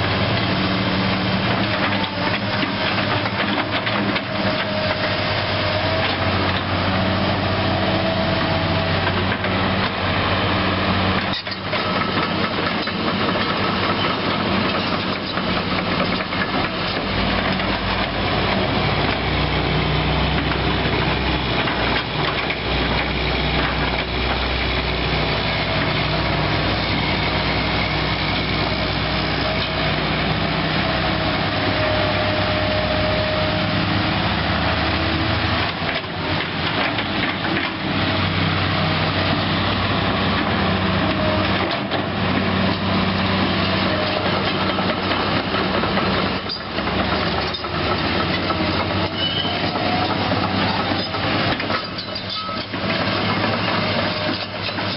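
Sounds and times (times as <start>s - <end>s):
diesel engine running: 0.0s - 54.9s
track squeals: 0.6s - 54.9s
clanking track links: 11.0s - 32.7s, 34.9s - 54.9s.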